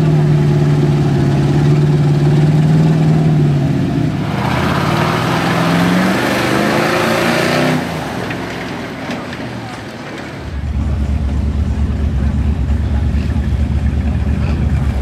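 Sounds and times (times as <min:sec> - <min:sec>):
tyres churning through mud: 0:00.0 - 0:10.8
truck engine revving: 0:00.0 - 0:15.0
truck engine running loud: 0:00.0 - 0:15.0.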